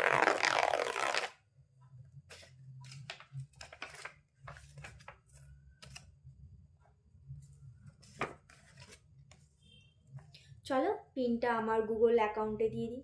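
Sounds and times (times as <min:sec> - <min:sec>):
envelope tearing: 0:00.0 - 0:01.3
paper rustling and crinkling: 0:02.3 - 0:06.1, 0:08.0 - 0:09.1.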